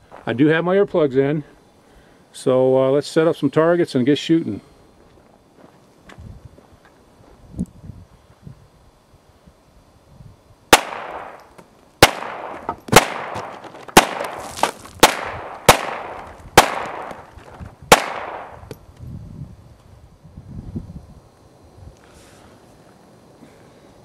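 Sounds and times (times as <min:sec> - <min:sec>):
pistol shots with echo: 0:10.7 - 0:14.4, 0:15.0 - 0:17.2, 0:17.9 - 0:18.7.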